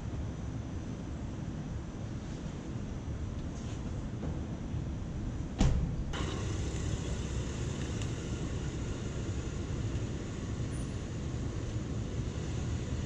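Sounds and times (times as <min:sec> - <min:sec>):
sharp thump: 0:05.6 - 0:06.0
car engine rumbling: 0:06.0 - 0:13.0.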